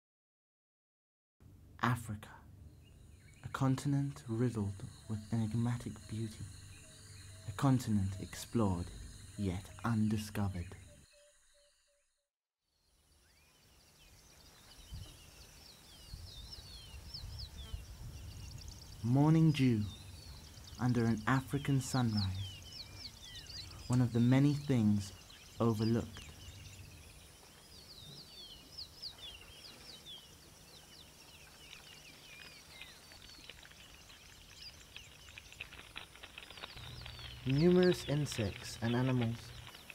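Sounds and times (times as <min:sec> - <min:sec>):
birds whistling: 0:13.3 - 0:39.9.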